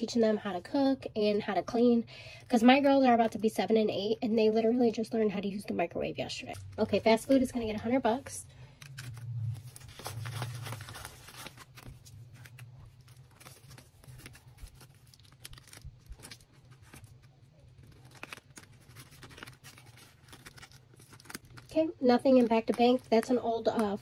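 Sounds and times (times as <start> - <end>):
paper banknotes rustling: 6.5 - 24.0.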